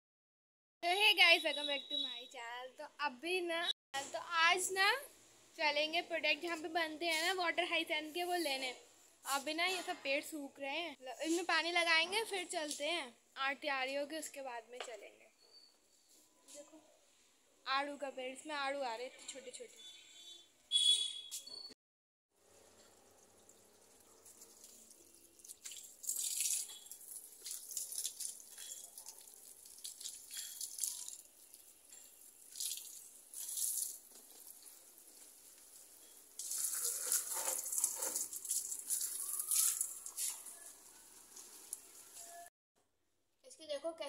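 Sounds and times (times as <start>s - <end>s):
water pouring on plants: 22.4s - 42.5s.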